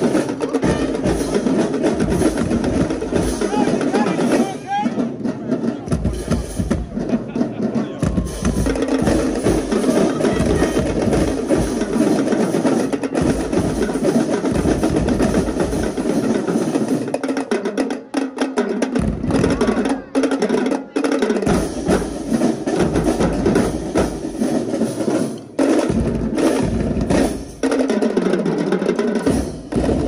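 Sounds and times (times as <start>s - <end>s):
bass drums: 0.0s - 4.1s, 5.9s - 12.4s, 25.8s - 27.6s
cymbals: 0.0s - 5.2s
snare drums: 0.0s - 30.0s
tenor drums: 0.0s - 30.0s.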